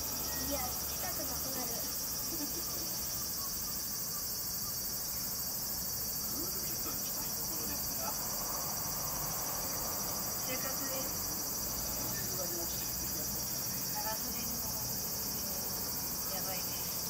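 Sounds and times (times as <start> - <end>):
cicadas shrilling: 0.0 - 17.0.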